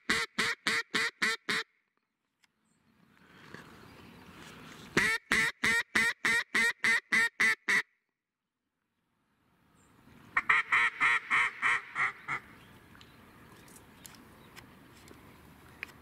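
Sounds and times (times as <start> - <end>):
duck call quacks: 0.0 - 1.7, 5.0 - 7.9, 10.4 - 12.5.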